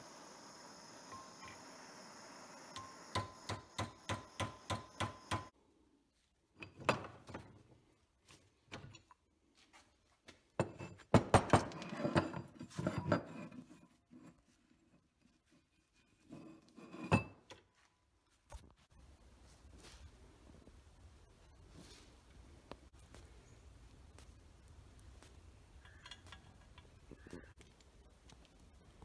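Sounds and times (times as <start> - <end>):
gas torch hissing: 0.0 - 5.5.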